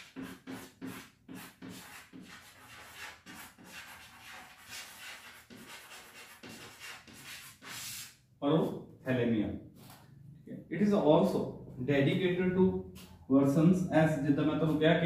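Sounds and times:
chalk scratching on blackboard: 0:00.0 - 0:08.2.

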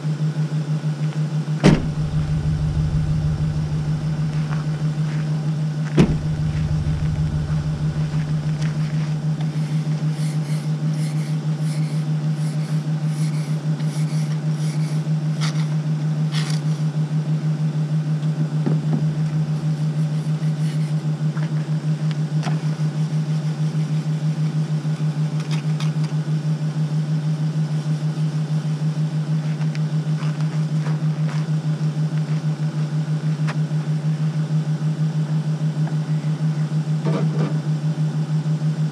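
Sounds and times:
car door shutting: 0:01.6 - 0:05.1, 0:06.0 - 0:09.0
pickup truck engine idling: 0:01.6 - 0:09.8.

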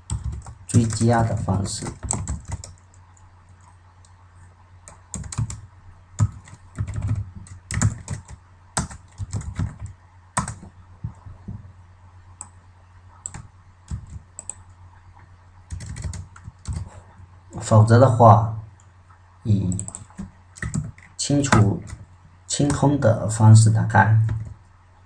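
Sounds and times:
keyboard typing: 0:00.0 - 0:04.2, 0:04.8 - 0:11.2, 0:12.4 - 0:14.8, 0:15.7 - 0:16.9, 0:19.7 - 0:22.1
steady low hum: 0:00.0 - 0:25.0.

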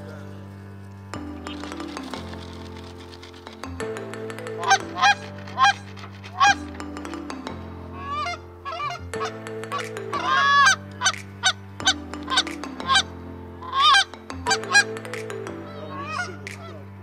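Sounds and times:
geese honking: 0:04.4 - 0:06.9, 0:07.9 - 0:15.0, 0:15.7 - 0:16.9.

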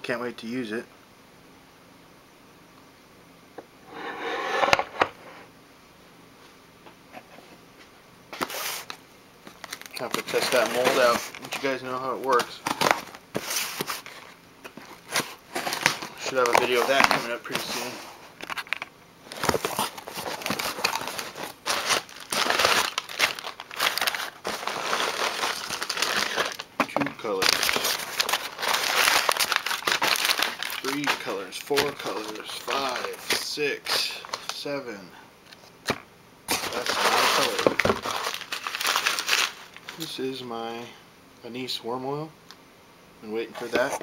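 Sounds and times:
packaging rustling: 0:08.4 - 0:34.6, 0:35.4 - 0:40.1.

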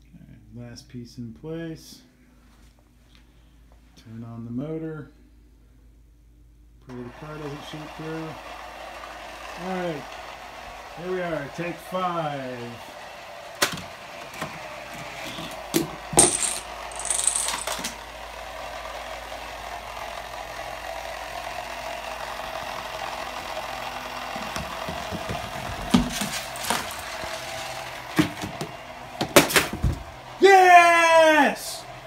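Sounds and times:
electric motor whining: 0:06.9 - 0:17.0, 0:17.7 - 0:29.2
books toppling knocks: 0:24.7 - 0:27.2, 0:28.2 - 0:30.0.

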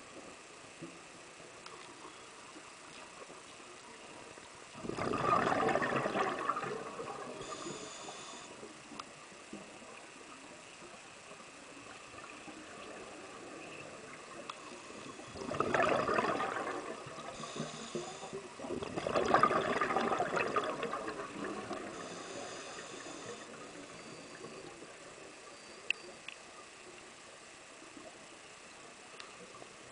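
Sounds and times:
diver exhaling bubbles underwater: 0:04.8 - 0:07.6, 0:15.2 - 0:17.6, 0:18.6 - 0:22.0.

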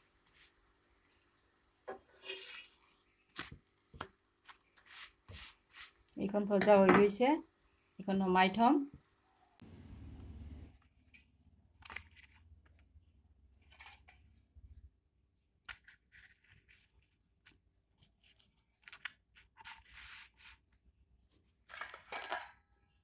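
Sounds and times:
hands rustling and scraping: 0:02.3 - 0:06.1.

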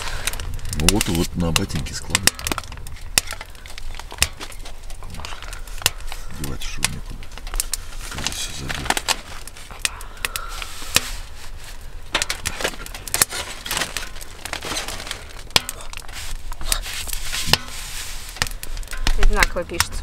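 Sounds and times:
sleeping bags rustling: 0:07.5 - 0:19.6.

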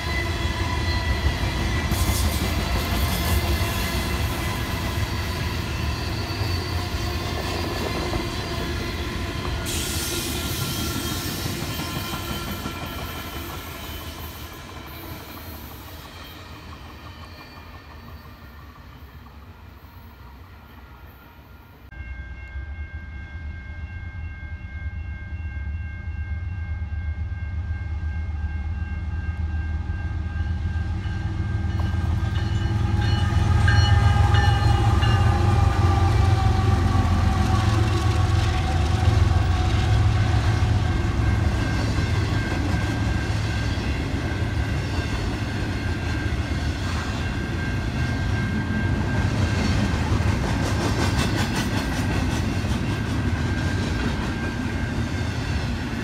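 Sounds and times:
train air horn: 0:08.6 - 0:13.2, 0:30.2 - 0:42.1.

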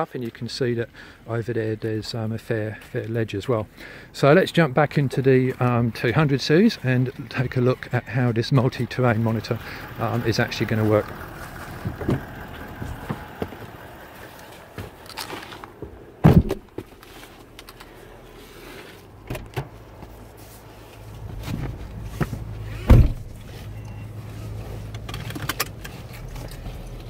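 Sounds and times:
engine idling hum: 0:00.2 - 0:27.0
car door thump: 0:15.8 - 0:16.8, 0:22.8 - 0:23.4.

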